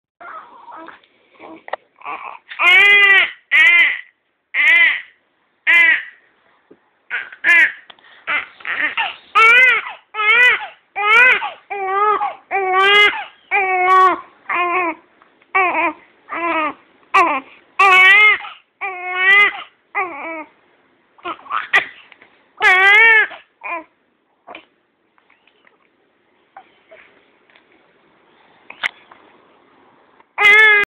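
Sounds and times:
baby crying: 0.2 - 6.2, 7.1 - 15.0, 15.6 - 20.5, 22.6 - 23.9, 30.4 - 30.9.

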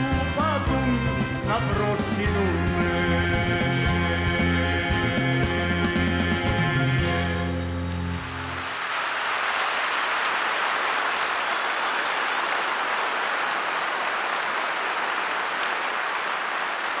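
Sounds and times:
audience applauding: 8.1 - 17.0.

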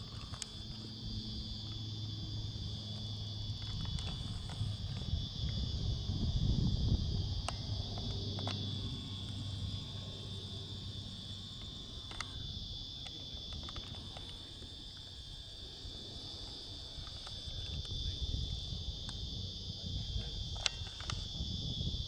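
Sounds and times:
insect chorus droning: 0.0 - 22.0
low rumble on microphone: 0.0 - 22.0
faint clicks: 11.6 - 12.4.

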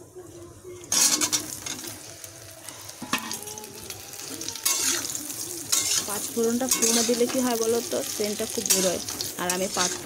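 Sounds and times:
food sizzling in hot oil: 0.8 - 10.0
metal spatula scraping pan: 0.9 - 1.8, 4.6 - 5.1, 5.7 - 7.5, 8.6 - 10.0.

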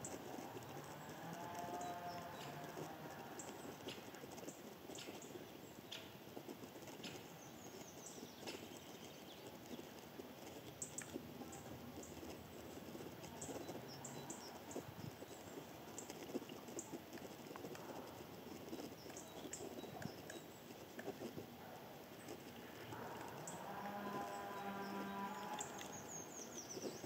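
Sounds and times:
ticks and rustles in dry leaves: 22.1 - 27.0.

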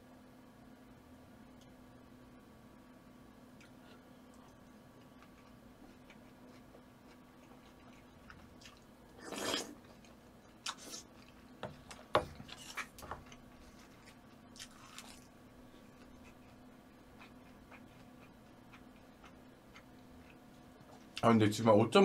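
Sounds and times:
faint steady hum: 0.0 - 22.0
chewing and clicking sounds: 3.6 - 8.9, 17.2 - 21.2.

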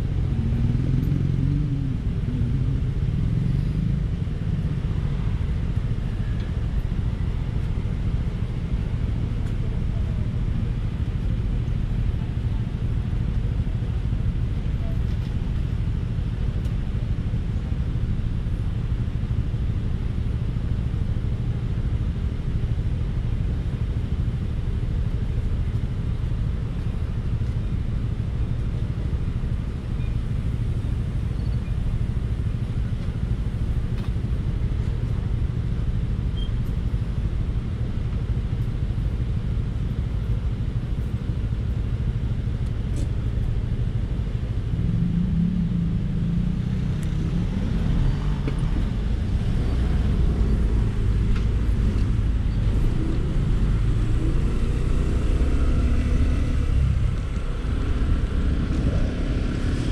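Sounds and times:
road traffic rumble: 0.0 - 59.9
engine and motor tones: 44.5 - 59.9.

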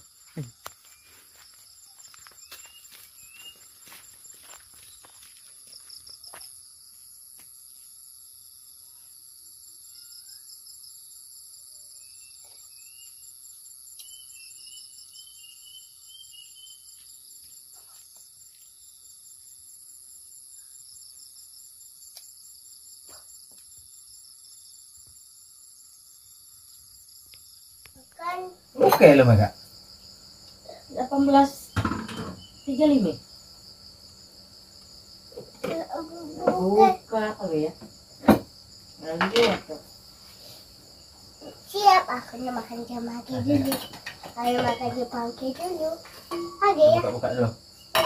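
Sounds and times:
insects droning shrilly: 0.0 - 48.0
bird chirps: 2.3 - 3.8, 13.9 - 17.0.

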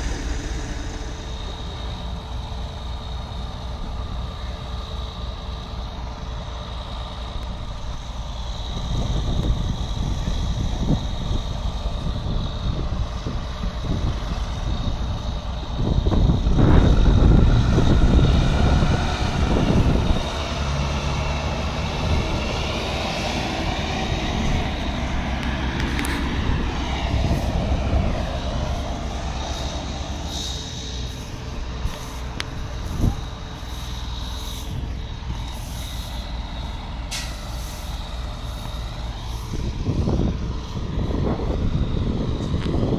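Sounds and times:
rising and falling whine: 0.0 - 4.2, 16.1 - 42.9
heavy diesel engines under load: 0.0 - 42.9.

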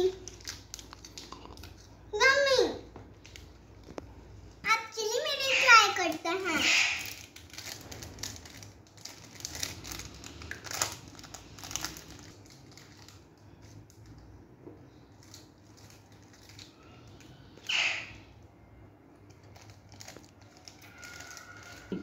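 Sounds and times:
snack wrapper crinkling: 0.0 - 2.0, 7.0 - 14.2, 15.1 - 17.3, 19.2 - 22.0.

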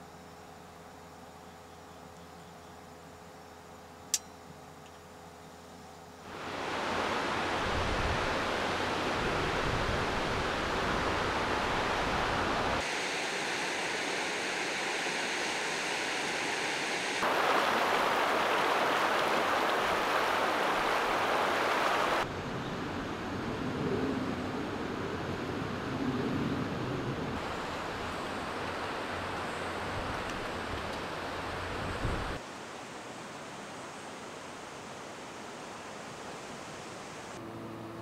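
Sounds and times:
river water flowing over stones: 6.3 - 9.2, 10.0 - 22.3.

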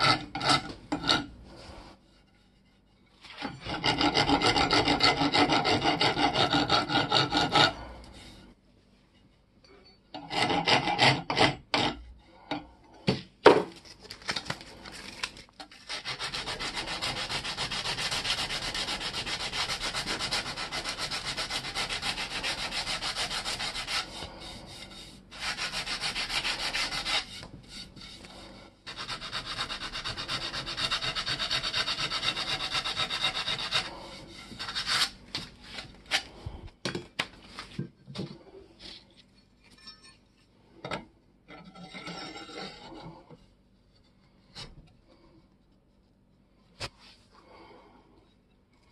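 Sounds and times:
file scraping on metal: 0.0 - 1.4, 2.1 - 8.4, 10.1 - 12.6, 15.7 - 35.2, 41.5 - 43.3
abrasive paper rubbing metal: 15.0 - 36.3.

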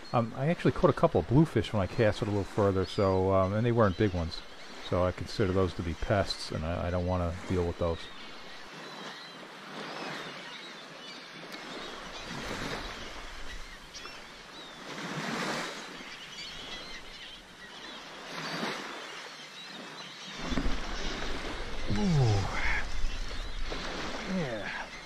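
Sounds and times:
waves washing on pebble beach: 11.6 - 19.2, 20.2 - 25.0.

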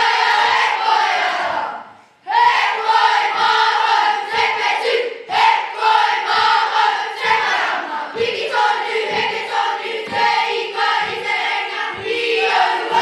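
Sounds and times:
children singing in unison: 0.0 - 13.0
low thump keeping beat: 3.0 - 13.0.

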